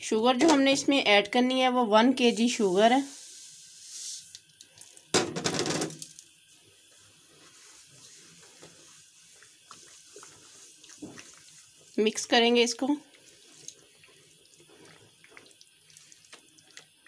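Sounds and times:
sugar pouring into a pot: 2.2 - 5.1.

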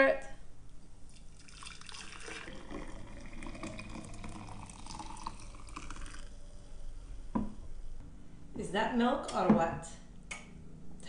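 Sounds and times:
liquid pouring into container: 1.1 - 6.8.

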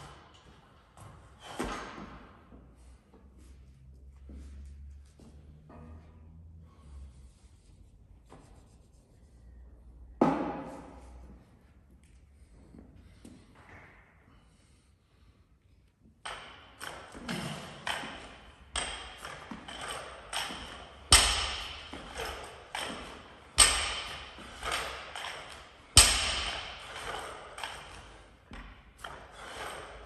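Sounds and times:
barbell thudding on floor: 16.3 - 27.2
barbell plates clinking: 16.3 - 28.1.

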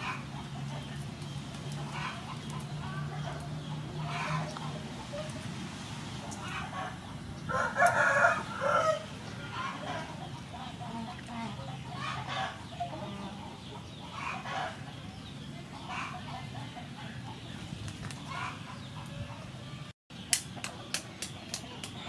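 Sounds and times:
chickens clucking: 0.0 - 22.0
rooster crowing: 7.5 - 9.1.

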